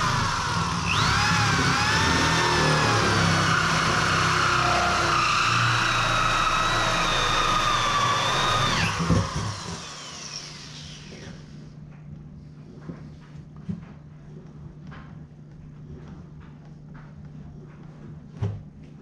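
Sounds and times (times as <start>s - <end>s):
drill cutting steel screeching: 0.0s - 11.4s.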